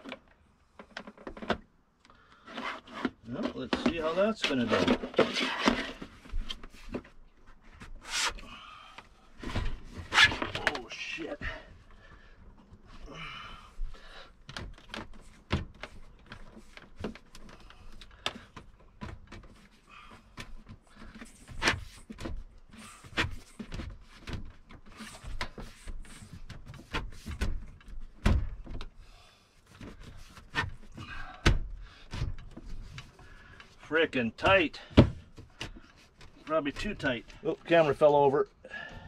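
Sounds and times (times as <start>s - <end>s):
plastic fridge knocking and scraping: 23.1s - 28.8s.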